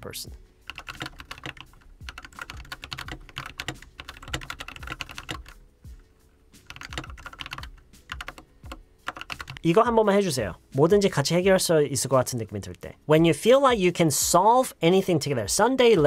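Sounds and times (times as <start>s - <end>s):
typing on a keyboard: 0.7s - 5.6s, 6.6s - 9.6s.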